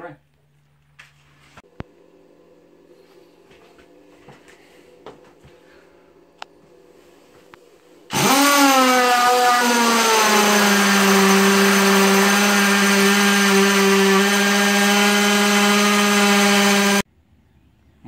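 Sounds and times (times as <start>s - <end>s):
power tool motor whining: 8.1s - 17.0s.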